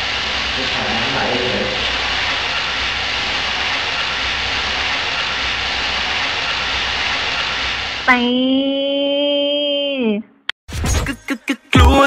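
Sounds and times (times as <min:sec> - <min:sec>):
water running from a tap: 0:00.0 - 0:08.1.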